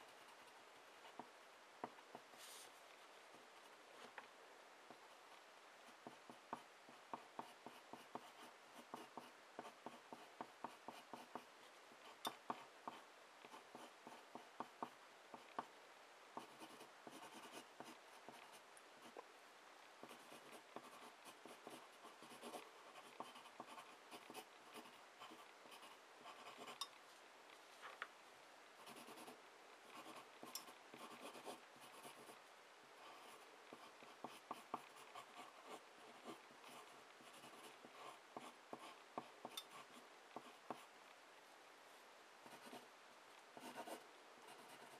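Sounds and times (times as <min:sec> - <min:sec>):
pencil scratching on paper: 0:06.0 - 0:15.7, 0:16.4 - 0:19.2, 0:20.0 - 0:26.8, 0:28.8 - 0:32.4, 0:33.0 - 0:40.9, 0:42.4 - 0:42.8, 0:43.6 - 0:44.9.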